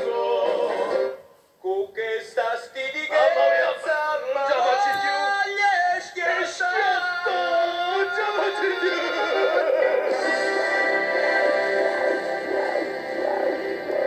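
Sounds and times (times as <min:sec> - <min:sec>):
men singing a tango duet: 0:02.0 - 0:14.0
backing music: 0:07.8 - 0:14.0.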